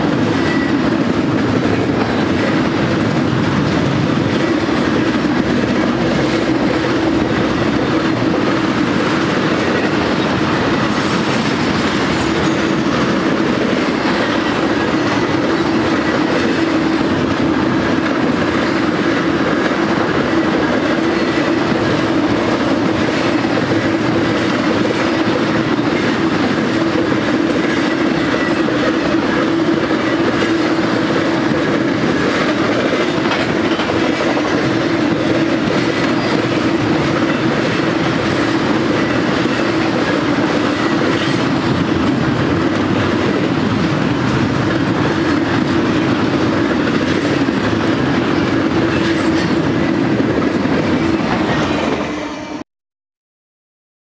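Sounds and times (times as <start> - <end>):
clickety-clack of wheels: 0.0 - 52.3
freight train wheels rumbling: 0.0 - 52.6.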